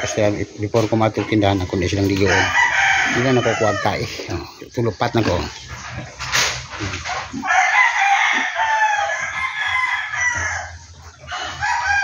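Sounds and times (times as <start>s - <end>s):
rooster crowing: 1.7s - 4.0s, 7.4s - 12.0s.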